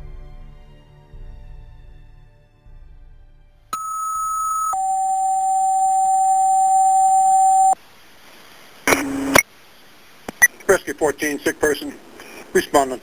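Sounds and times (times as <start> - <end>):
two-tone radio page alert: 3.8 - 7.8.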